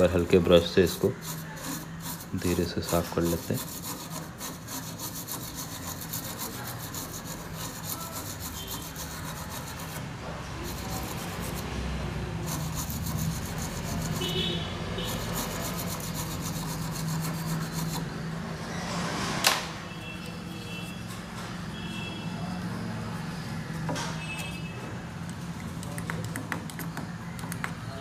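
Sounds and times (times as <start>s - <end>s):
toothbrush scrubbing circuit board: 0.0s - 18.2s.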